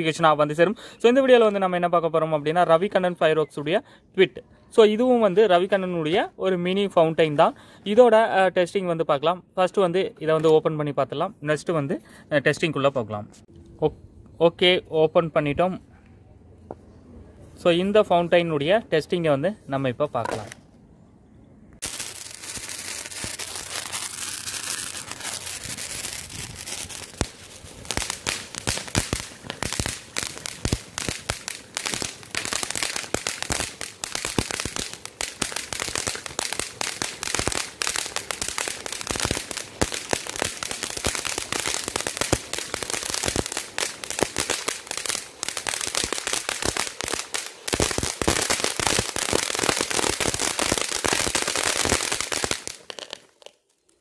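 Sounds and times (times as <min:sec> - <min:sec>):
hiss of sparks: 0:21.8 - 0:53.5
rapid crackle of small pops: 0:21.8 - 0:54.0.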